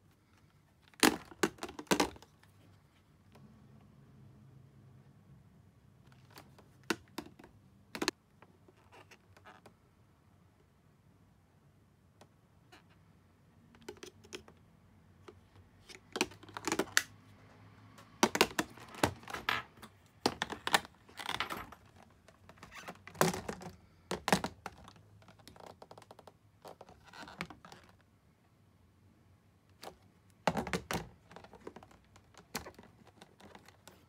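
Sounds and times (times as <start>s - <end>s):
plastic cases clicking and tapping: 0.9s - 2.3s, 6.1s - 8.2s, 15.2s - 17.1s, 18.0s - 27.9s, 29.8s - 34.0s.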